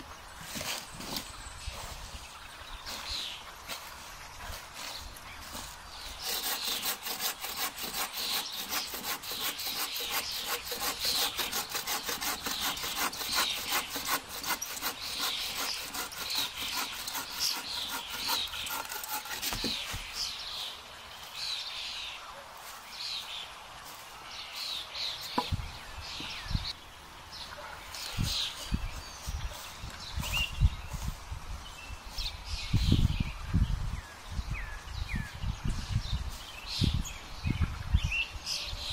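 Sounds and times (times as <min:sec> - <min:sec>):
bow saw cutting branch: 0:05.5 - 0:20.2.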